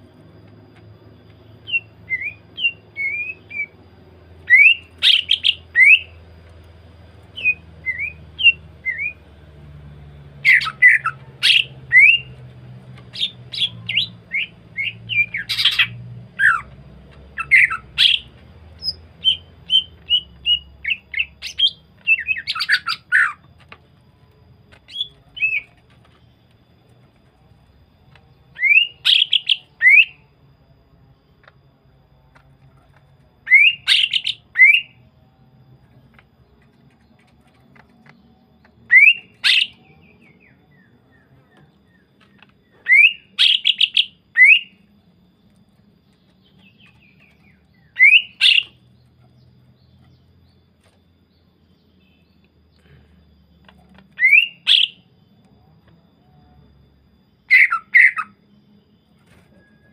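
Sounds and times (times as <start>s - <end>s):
bird singing whistled notes: 0.1s - 9.4s, 10.0s - 23.5s, 24.1s - 27.0s, 28.3s - 30.5s, 33.3s - 35.4s, 38.0s - 45.1s, 46.0s - 52.9s, 54.0s - 59.9s.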